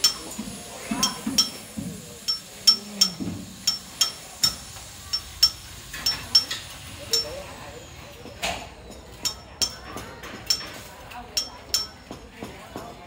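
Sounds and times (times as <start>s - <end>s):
hammer clinking on metal: 0.9s - 1.7s, 2.3s - 6.6s, 8.9s - 12.5s.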